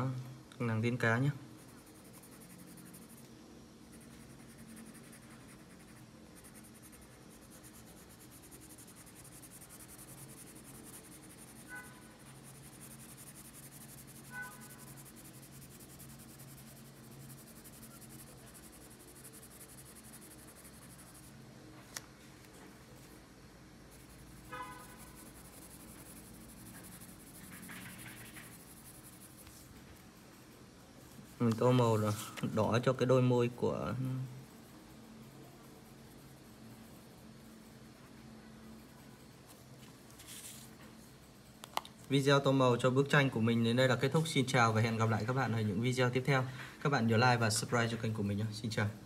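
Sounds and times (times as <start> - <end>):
pencil scratching on paper: 1.6 - 3.3, 3.9 - 21.4, 23.9 - 33.8, 34.4 - 40.8.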